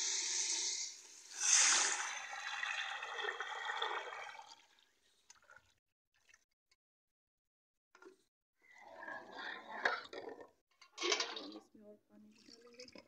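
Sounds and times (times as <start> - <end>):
batter hissing in hot oil: 0.0 - 2.4.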